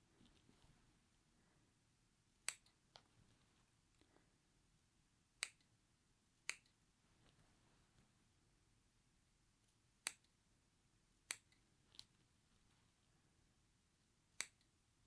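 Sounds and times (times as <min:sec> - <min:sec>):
scissors snipping fabric: 0:02.4 - 0:02.8, 0:06.4 - 0:06.8, 0:14.4 - 0:14.7.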